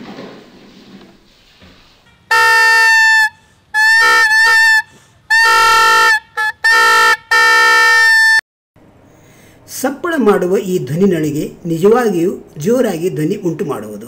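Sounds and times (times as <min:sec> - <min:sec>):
toy horn honking blasts: 0:02.3 - 0:08.4.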